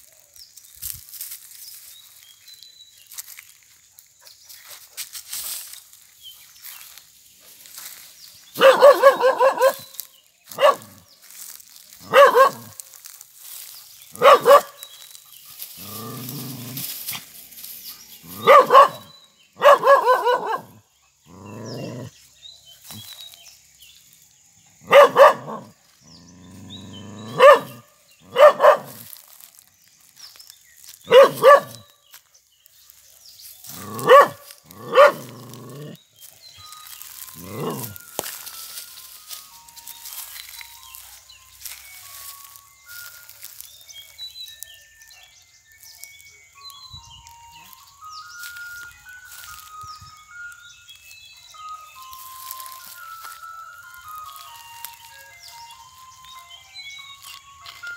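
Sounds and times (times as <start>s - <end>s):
dog barking: 8.6s - 9.9s, 10.5s - 11.0s, 12.0s - 12.8s, 14.2s - 14.8s, 18.4s - 20.8s, 24.9s - 25.7s, 27.2s - 29.1s, 31.1s - 31.9s, 33.8s - 36.0s.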